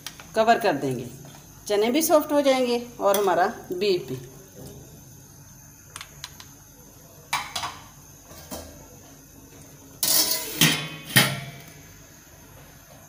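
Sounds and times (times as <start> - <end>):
lid scraping clatter and clanks: 10.0 - 11.5.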